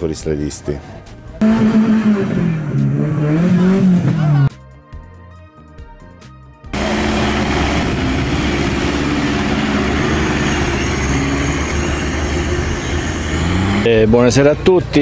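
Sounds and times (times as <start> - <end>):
engine running under load: 1.4 - 4.5, 6.7 - 14.6.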